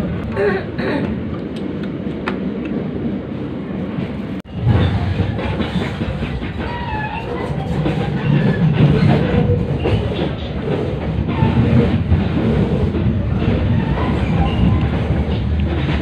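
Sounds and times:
train low rumble: 0.0s - 16.0s
wheels clickety-clack over rail joints: 4.0s - 16.0s.

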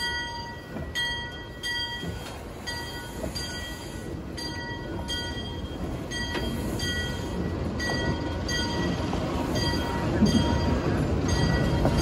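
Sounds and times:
train wheels rumbling on rails: 0.0s - 12.0s
steam hissing: 6.2s - 7.6s.

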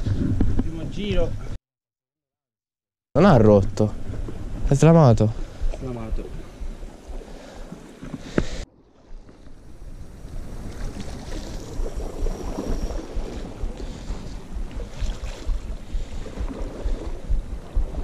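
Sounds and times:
wind buffeting microphone: 3.5s - 18.0s
sea washing against rocks: 9.3s - 18.0s.

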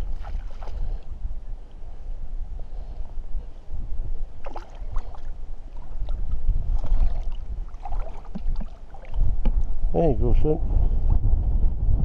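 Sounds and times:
water splashing: 0.0s - 1.0s, 4.4s - 9.2s
wind buffeting microphone: 0.0s - 12.0s.

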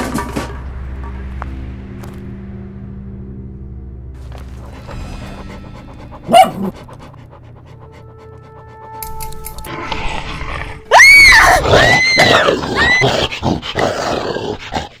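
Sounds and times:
growling snarl: 9.7s - 15.0s
high shrieking cries: 10.9s - 13.2s.

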